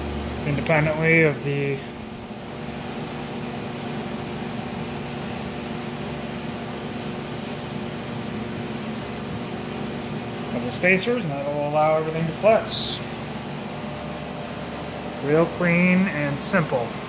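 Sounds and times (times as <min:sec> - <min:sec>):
machine humming: 0:00.0 - 0:17.0.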